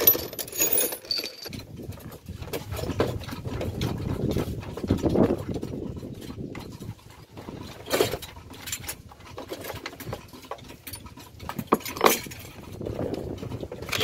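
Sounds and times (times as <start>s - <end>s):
wrench clicking and scraping on bolt: 0.0s - 1.5s.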